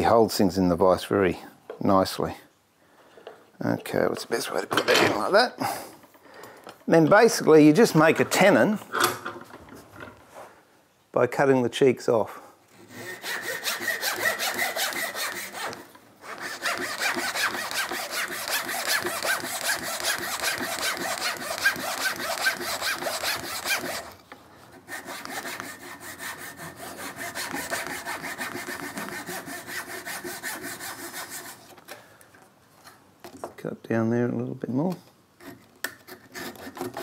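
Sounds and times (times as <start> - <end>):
hand saw cutting wood: 12.8 - 31.7, 35.4 - 37.0.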